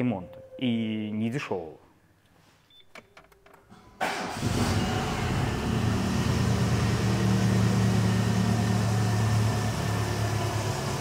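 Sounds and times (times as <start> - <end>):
car engine starting and idling: 4.0 - 11.0.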